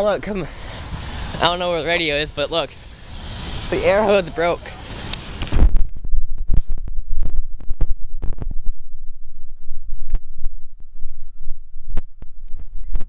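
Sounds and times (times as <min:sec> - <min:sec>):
freight train rumbling past: 0:00.0 - 0:05.2.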